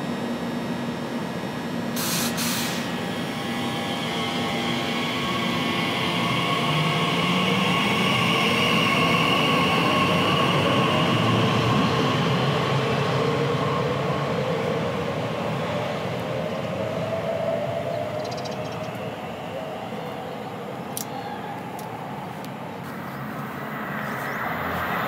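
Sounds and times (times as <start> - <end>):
electric train traction whine: 0.0 - 25.0
brief air hiss: 2.0 - 3.0.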